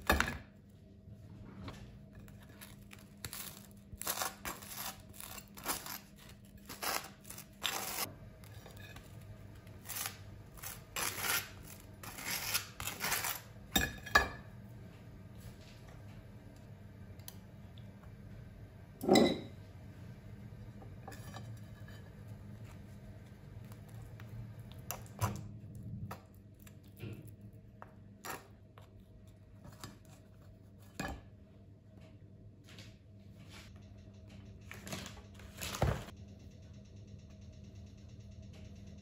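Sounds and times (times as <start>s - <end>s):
steady low hum: 0.0s - 39.0s
dishes and cutlery clinking: 19.0s - 19.6s.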